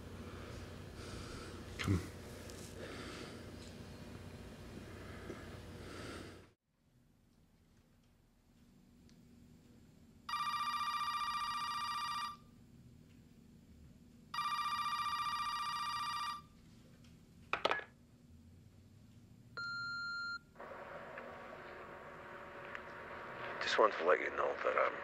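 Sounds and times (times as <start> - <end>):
telephone ringing: 10.3 - 12.5, 14.3 - 16.6
telephone line hiss: 19.6 - 25.0.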